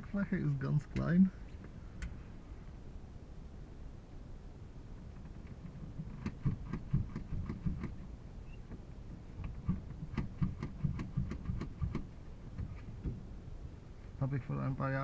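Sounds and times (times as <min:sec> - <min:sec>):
mechanical clicks of cockpit controls: 0:00.8 - 0:02.2, 0:09.4 - 0:13.2.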